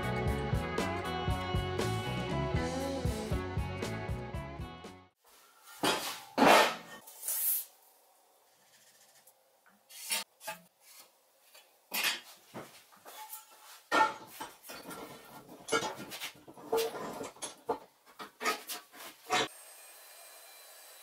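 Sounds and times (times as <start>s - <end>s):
scratching on metal tube: 8.5s - 11.0s.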